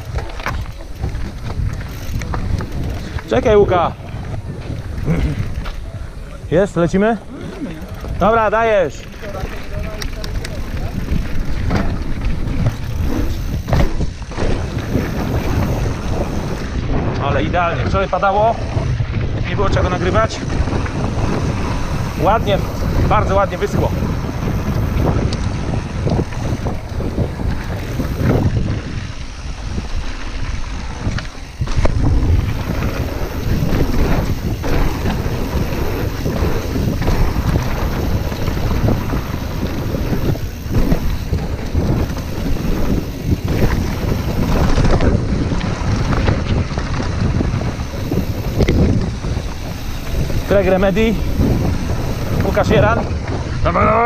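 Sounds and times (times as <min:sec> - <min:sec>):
bike clattering and rattling: 0:00.0 - 0:54.0
wind rushing over microphone: 0:00.0 - 0:54.0.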